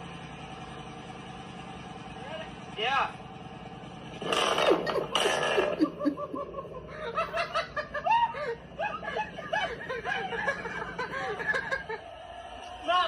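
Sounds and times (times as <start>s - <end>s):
person giggling: 4.8s - 12.0s.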